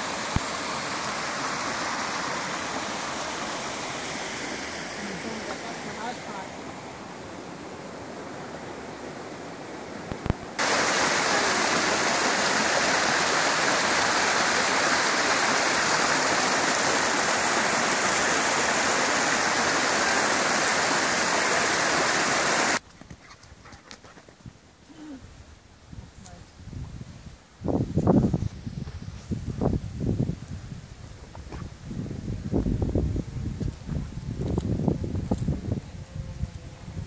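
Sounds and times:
creek water rushing over rocks: 0.0 - 22.8.

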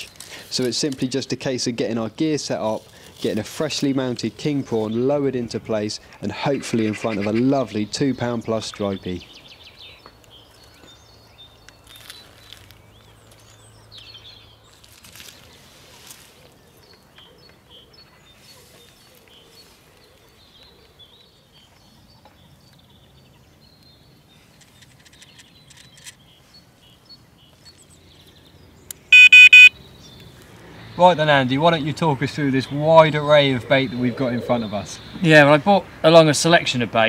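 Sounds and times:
faint birdsong: 0.0 - 37.0
rapid electronic beeps: 29.1 - 29.7.

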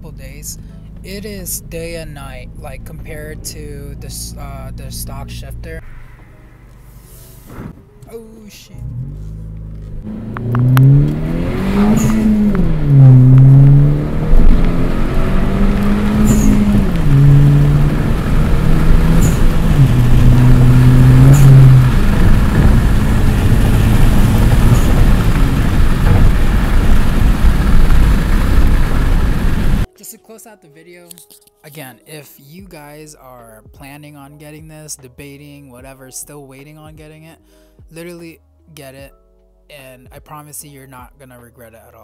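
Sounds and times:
car engine accelerating: 0.0 - 8.1, 8.7 - 29.9
road noise: 0.0 - 29.9.

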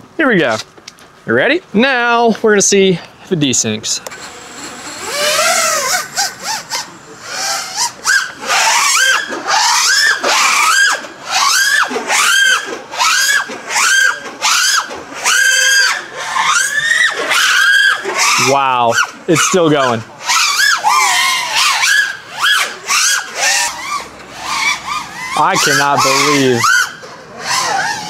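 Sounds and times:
drone motors whining: 3.6 - 28.0.

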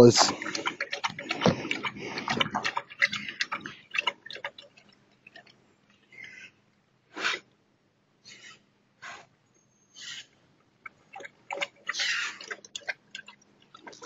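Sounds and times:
dog lapping water: 0.0 - 5.5, 10.8 - 14.0.

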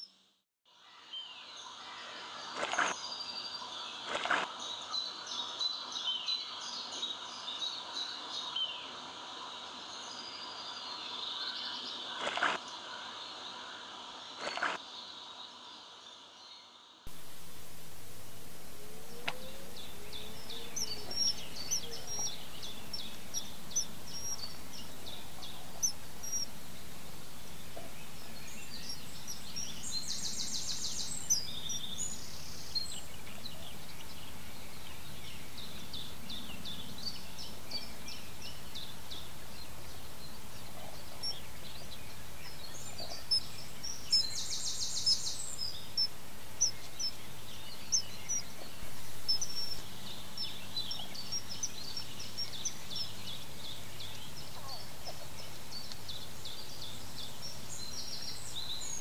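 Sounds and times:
steady background hiss: 0.8 - 59.0
birds chirping: 1.6 - 59.0
bird trills: 18.8 - 26.6.

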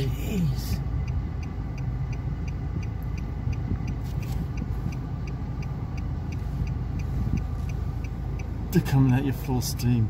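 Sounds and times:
car idling: 0.0 - 10.0
turn signal ticking: 0.0 - 10.0.

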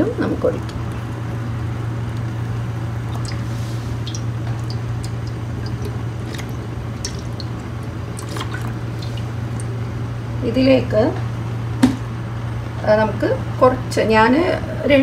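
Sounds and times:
steady low hum: 0.0 - 15.0
oil trickling into pan: 3.0 - 9.8.

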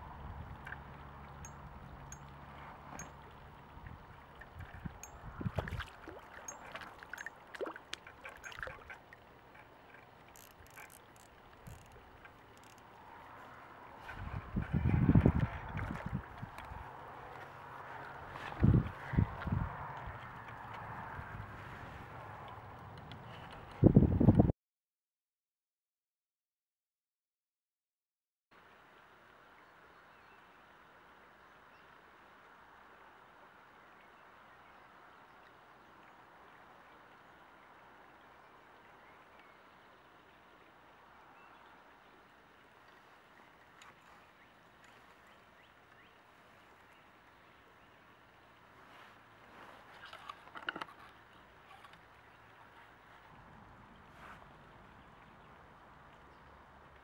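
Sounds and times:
faint outdoor hiss: 28.6 - 57.0.

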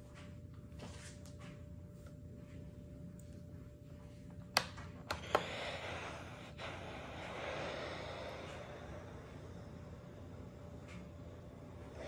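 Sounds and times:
steam iron hissing: 5.2 - 9.7.

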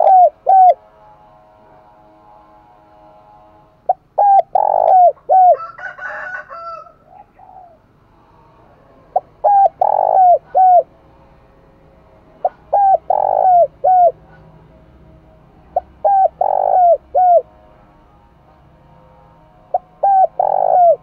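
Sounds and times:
dove cooing: 0.0 - 0.8, 3.9 - 5.8, 6.6 - 7.9, 9.1 - 10.9, 12.4 - 14.5, 15.7 - 17.6, 19.7 - 21.0.

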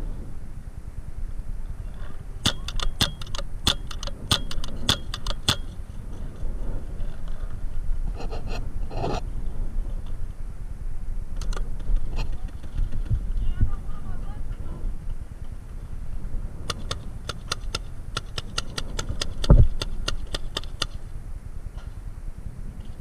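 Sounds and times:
steady low rumble: 0.0 - 23.0
paintball marker shots: 2.4 - 5.8, 16.7 - 21.0.

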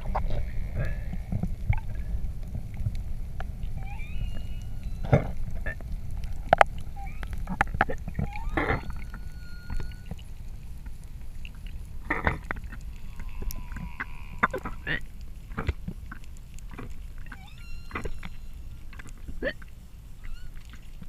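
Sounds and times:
underwater water rushing rumble: 0.0 - 19.4
clicks and crackles: 0.0 - 21.0
faint high whistling tones: 3.7 - 5.3, 6.9 - 7.4, 8.2 - 10.3, 17.3 - 18.8, 20.2 - 20.6.

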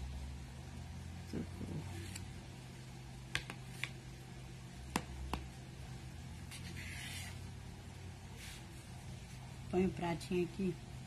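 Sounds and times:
steady low hum: 0.0 - 11.0
soft scrape: 6.5 - 7.5, 8.3 - 9.4.

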